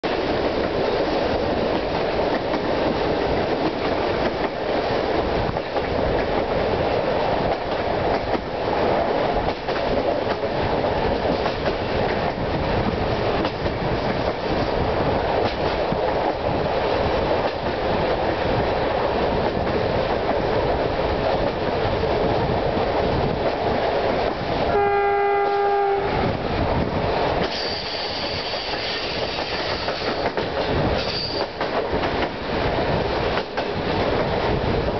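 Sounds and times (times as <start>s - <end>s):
train rumbling on rails: 0.0s - 34.9s
train horn: 24.7s - 26.4s.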